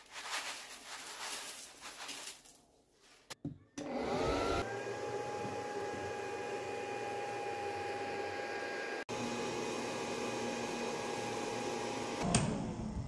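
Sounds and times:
small vacuum motor whine: 3.8 - 13.0.

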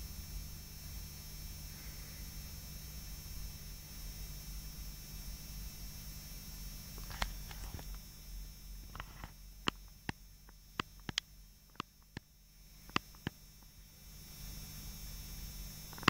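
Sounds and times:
sharp clicks: 9.0 - 12.3, 12.9 - 13.4.

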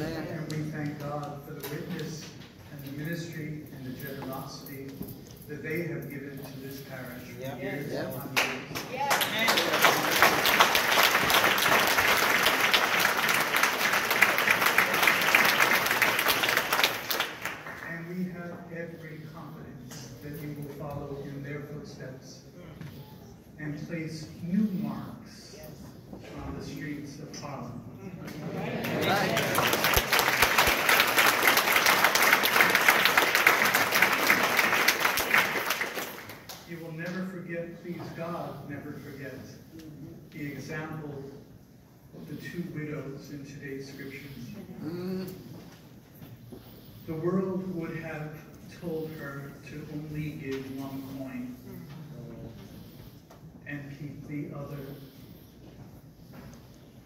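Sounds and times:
congregation applauding: 8.3 - 18.0, 28.8 - 36.7.

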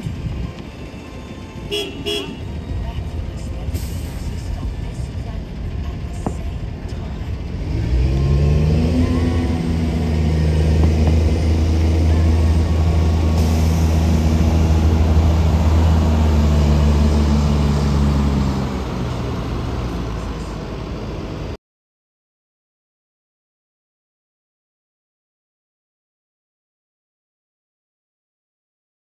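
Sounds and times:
tractor engine running: 0.0 - 21.6.

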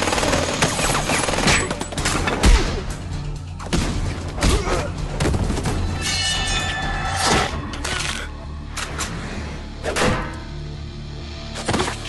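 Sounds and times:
film music score: 0.0 - 12.0.

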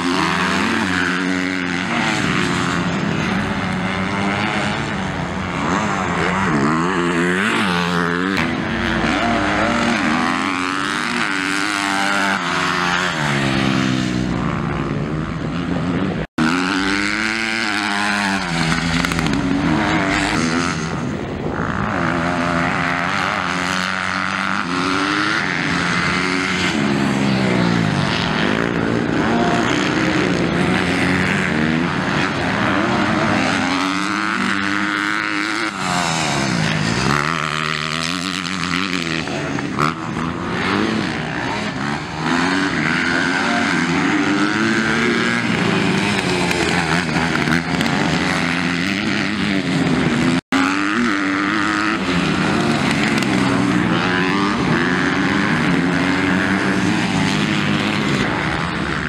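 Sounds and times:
motocross bike engines revving: 0.0 - 59.0.

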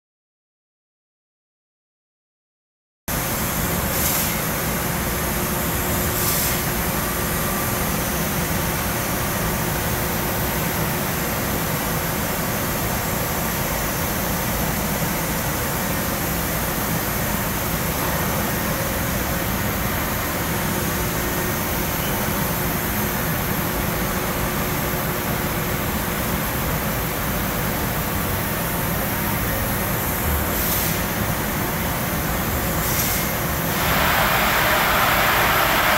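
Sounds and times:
laser cutter machine noise: 3.1 - 35.9
brief high hisses: 32.8 - 35.9.

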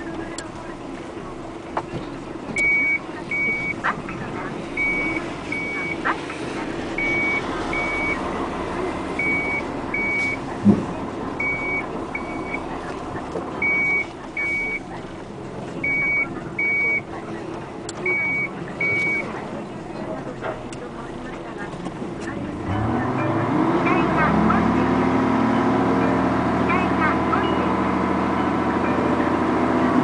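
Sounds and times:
engine running: 0.0 - 30.0
reversing alarm beeping: 2.6 - 3.9, 4.7 - 6.0, 7.0 - 8.2, 9.2 - 10.5, 11.4 - 12.7, 13.6 - 14.9, 15.8 - 17.1, 18.0 - 19.3.

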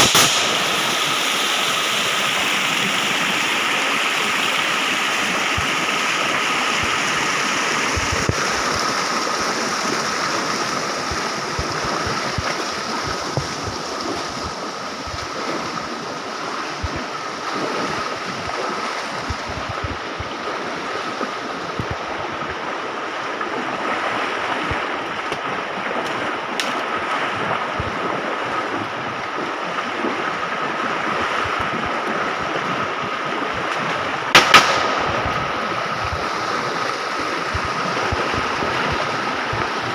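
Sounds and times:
loud gunshots: 0.0 - 1.5, 34.3 - 36.0
stream rushing and splashing: 0.0 - 39.9.

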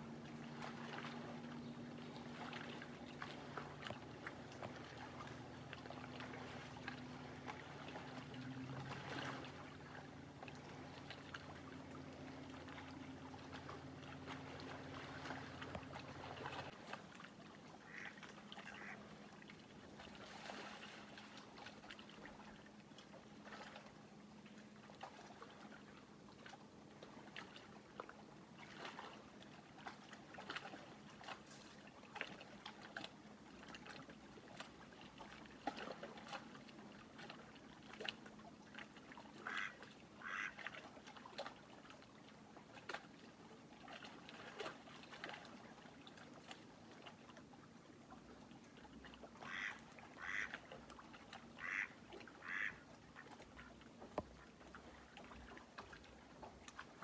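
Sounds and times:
water lapping: 0.0 - 57.0
ducks quacking: 17.8 - 19.0, 39.4 - 40.6, 49.4 - 50.6, 51.6 - 53.7.

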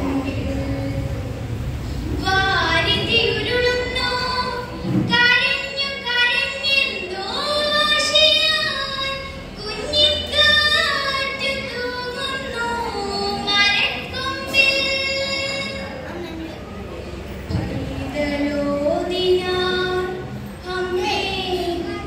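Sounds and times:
girl singing unaccompanied: 0.0 - 16.0, 17.5 - 22.0.

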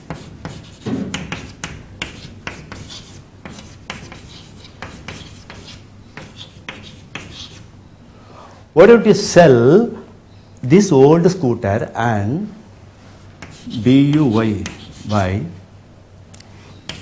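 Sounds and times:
chalk writing on a chalkboard: 0.0 - 7.7, 13.4 - 15.3.

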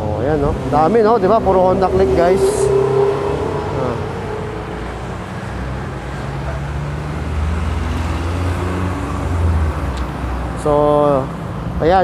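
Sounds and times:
vehicle engine rumble: 0.0 - 12.0.

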